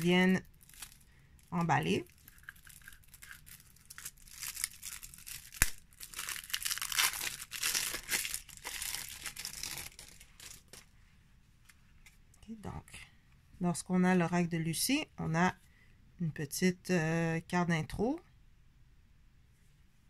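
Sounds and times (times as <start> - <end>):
wrapping crinkling and tearing: 0.0 - 10.9.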